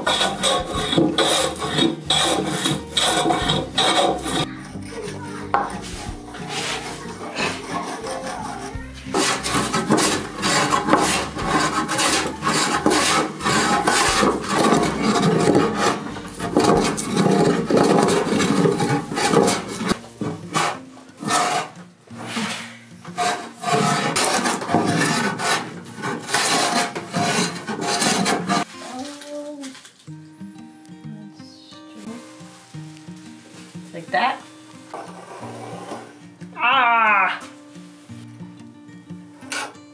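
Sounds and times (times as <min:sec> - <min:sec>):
hand plane shaving wood: 0:00.0 - 0:04.5, 0:05.8 - 0:28.7.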